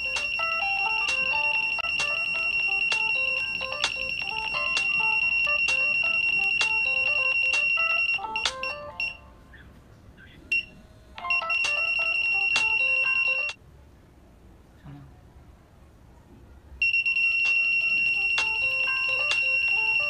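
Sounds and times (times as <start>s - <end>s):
piezo buzzer high beep: 0.0s - 9.2s, 10.5s - 13.6s, 16.8s - 20.0s
phone ringtone melody: 0.0s - 9.5s, 10.5s - 13.6s, 16.8s - 20.0s.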